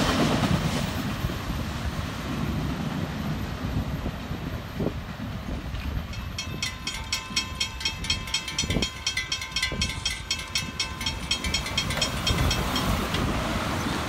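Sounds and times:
road traffic moving: 1.6 - 14.0
railroad crossing bell ringing: 5.8 - 14.0.

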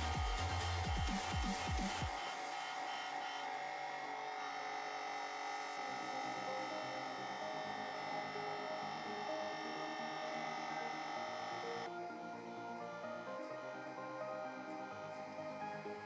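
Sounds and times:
electric pump motor humming: 0.0 - 11.9.

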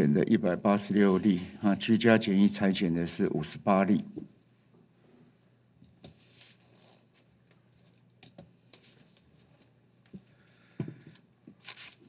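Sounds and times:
paper rustling: 11.6 - 12.0.

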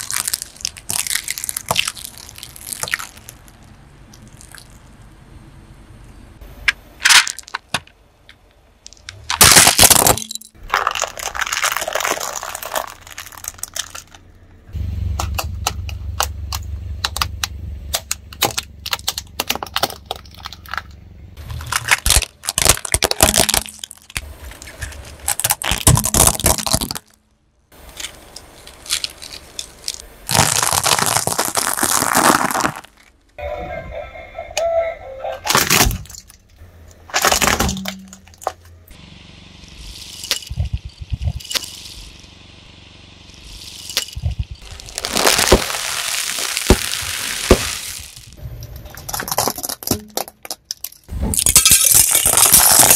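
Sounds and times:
tyre crunching objects: 0.0 - 4.9, 8.8 - 14.3, 18.4 - 33.4, 43.3 - 52.9
low hum: 12.4 - 22.3, 33.1 - 49.5.

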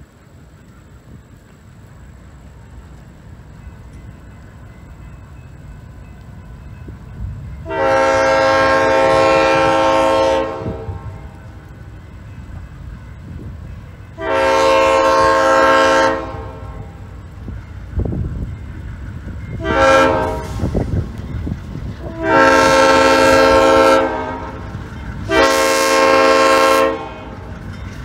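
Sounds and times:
locomotive rumble: 0.0 - 28.0
locomotive air horn blasts: 7.6 - 11.4, 14.1 - 17.0, 19.5 - 20.9, 22.0 - 27.5.

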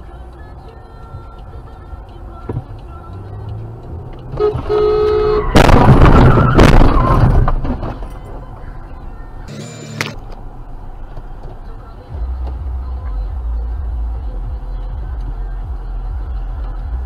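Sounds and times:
car horn: 4.3 - 7.2
loud car crash: 5.4 - 8.1.

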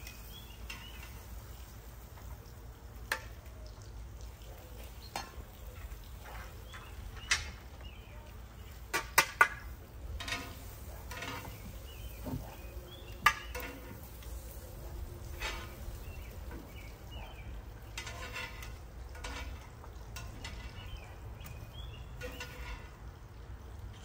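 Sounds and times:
metal tongs clicking on grill: 0.0 - 1.4, 3.0 - 3.6, 8.9 - 11.6, 13.2 - 16.5, 17.9 - 22.9.

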